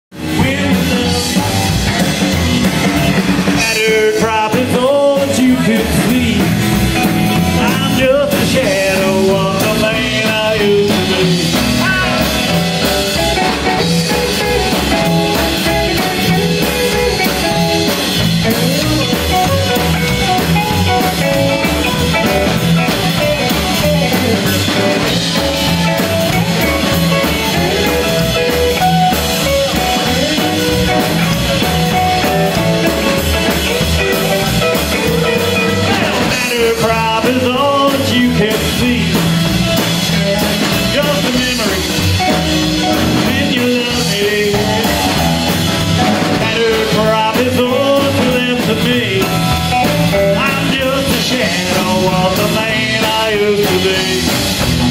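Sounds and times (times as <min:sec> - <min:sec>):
upright bass: 0:00.0 - 0:54.9
drum kit: 0:00.1 - 0:54.9
electric guitar: 0:00.1 - 0:54.9.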